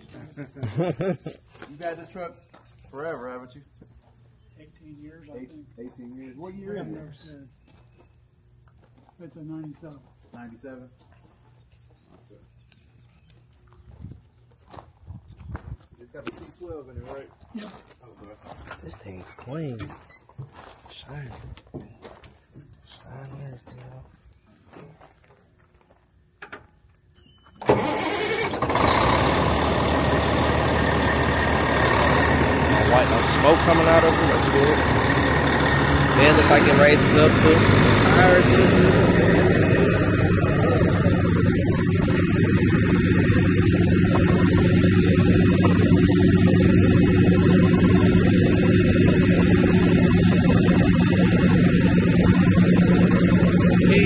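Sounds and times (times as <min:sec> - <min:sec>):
diesel engine starting and idling: 0:27.6 - 0:54.0.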